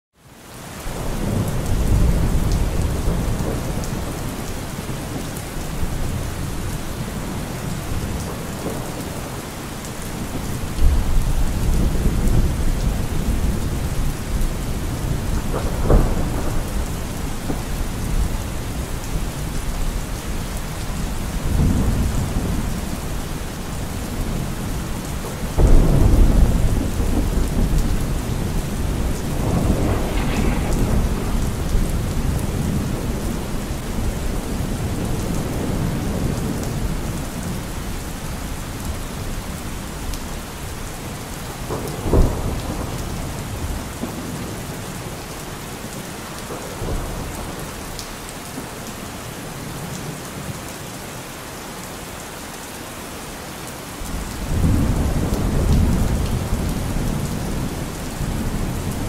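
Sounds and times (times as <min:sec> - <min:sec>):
steady rain: 0:00.2 - 0:59.0
thunder rumbling: 0:00.9 - 0:09.4, 0:10.1 - 0:37.6, 0:41.4 - 0:44.6, 0:54.1 - 0:59.0.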